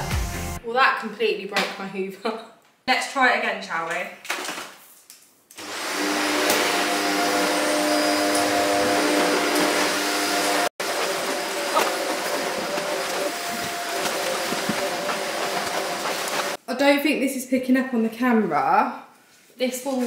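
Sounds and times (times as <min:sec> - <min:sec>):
vacuum cleaner motor whine: 0:05.6 - 0:16.6.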